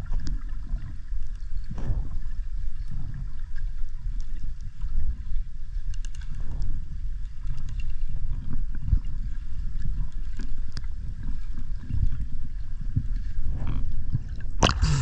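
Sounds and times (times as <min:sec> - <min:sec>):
muffled underwater water rumble: 0:00.0 - 0:15.0
light clicks: 0:05.9 - 0:06.7.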